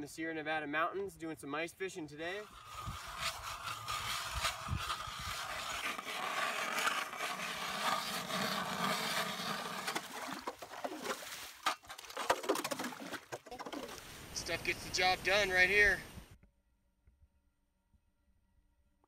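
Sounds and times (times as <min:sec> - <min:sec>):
ice auger grinding through ice: 0:02.4 - 0:14.0
knocks and scrapes: 0:02.4 - 0:14.0.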